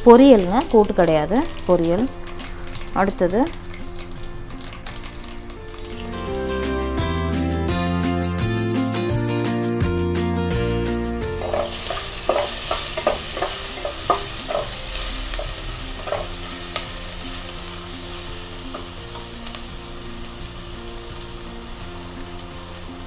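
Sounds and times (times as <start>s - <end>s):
vegetables sizzling in hot oil: 0.0s - 6.5s, 11.3s - 23.0s
spatula scraping a pan: 11.4s - 16.8s.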